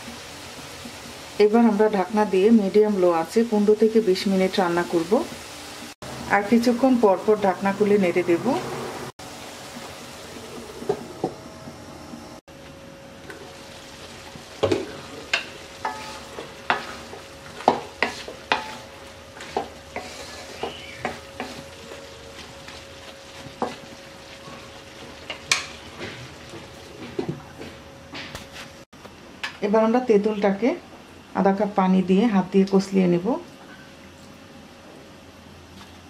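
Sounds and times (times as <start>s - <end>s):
steady sizzle: 0.0s - 27.5s
spatula knocking and scraping pan: 14.3s - 24.0s.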